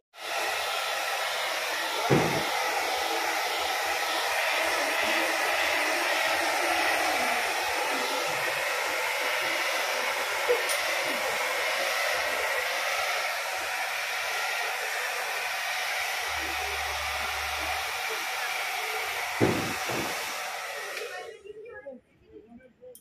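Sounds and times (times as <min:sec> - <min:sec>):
hair dryer blowing: 0:00.1 - 0:21.4.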